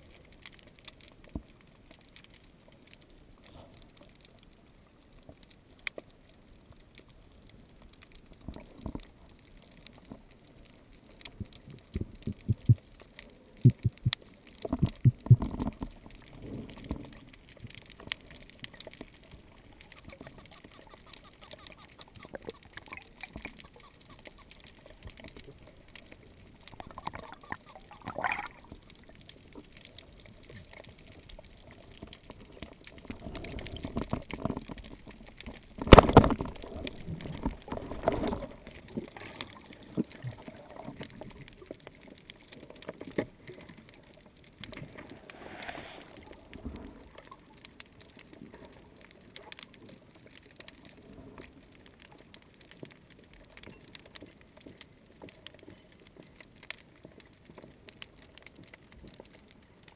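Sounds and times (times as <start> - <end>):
faint underwater hiss: 44.8 - 47.3.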